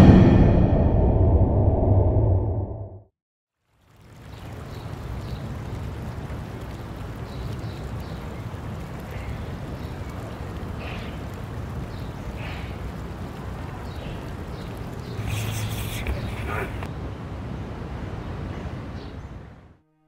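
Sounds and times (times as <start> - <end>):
low hum: 0.0 - 3.1
stream running: 3.5 - 19.6.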